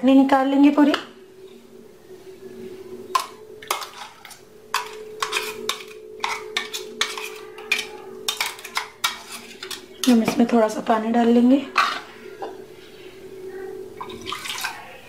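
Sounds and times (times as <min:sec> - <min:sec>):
metal spoon scraping steel jar: 0:03.2 - 0:10.5, 0:11.8 - 0:12.2.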